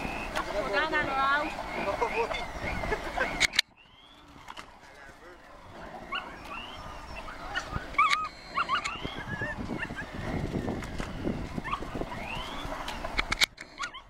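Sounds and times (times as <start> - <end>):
dog yipping and whining: 6.0 - 10.5, 11.5 - 12.8, 13.7 - 14.0.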